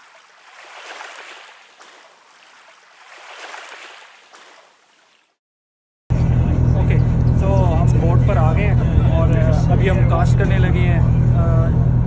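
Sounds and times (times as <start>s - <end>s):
water rushing along boat hull: 0.0s - 5.4s.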